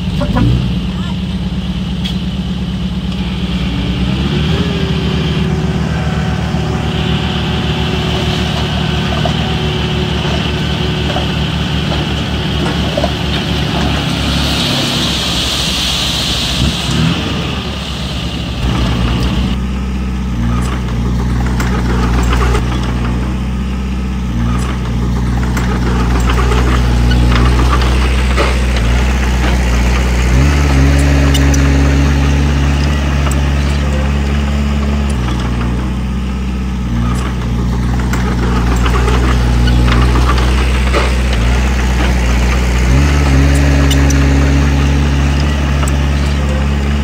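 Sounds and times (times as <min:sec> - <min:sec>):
construction machine diesel engine: 0:00.0 - 0:47.0
hiss: 0:13.6 - 0:19.5.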